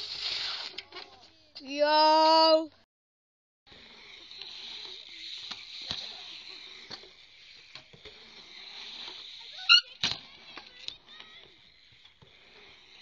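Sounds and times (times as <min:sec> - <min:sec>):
bike tyres hissing on concrete: 0:00.0 - 0:00.8, 0:03.7 - 0:13.0
high squeak: 0:09.4 - 0:10.1.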